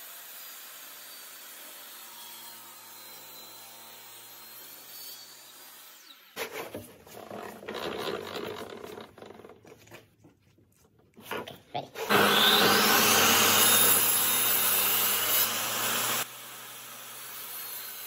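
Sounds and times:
wood rubbing and scraping: 6.4s - 13.8s.

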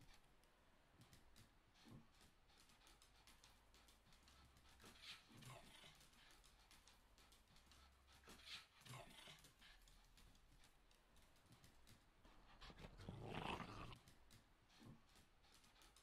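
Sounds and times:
small dog vocalizing: 12.5s - 14.0s.

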